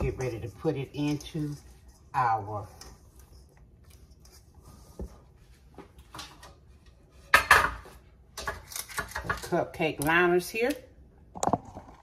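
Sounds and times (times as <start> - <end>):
metal kitchenware clatter: 0.0 - 4.9, 6.2 - 10.4.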